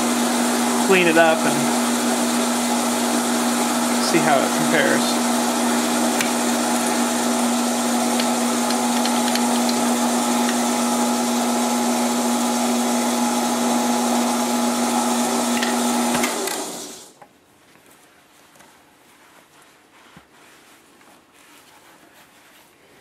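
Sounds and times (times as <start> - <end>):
lathe winding down: 0.0 - 17.1
metal lathe running: 0.0 - 17.1.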